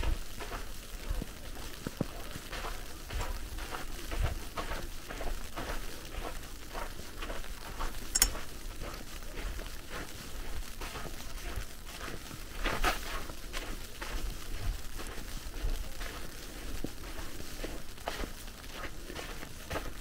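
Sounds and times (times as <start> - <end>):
footsteps crunching through snow: 0.1 - 20.0
sharp click: 8.2 - 8.4.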